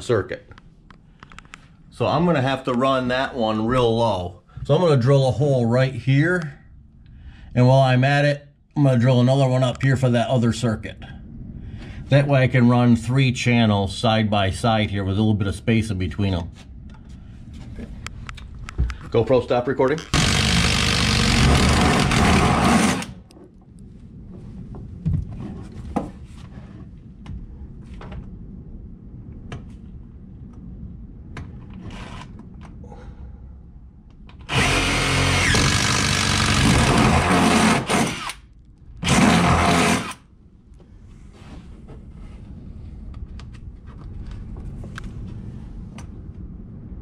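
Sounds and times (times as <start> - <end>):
cordless drill boring into wood: 20.1 - 23.2, 34.5 - 38.4, 39.0 - 40.2.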